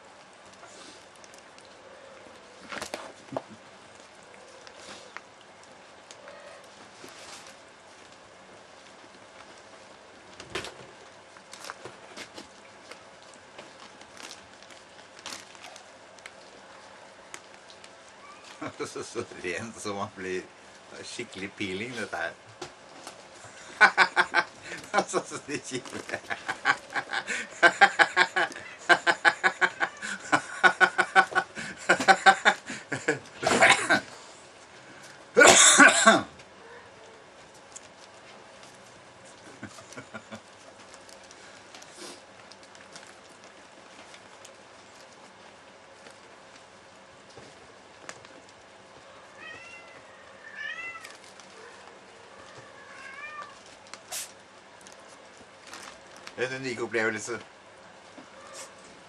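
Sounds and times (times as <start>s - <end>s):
cat meowing: 18.1s - 18.6s, 49.1s - 53.6s
person laughing: 23.5s - 34.1s, 39.6s - 40.4s
cat hissing: 49.3s - 54.4s, 58.4s - 58.9s.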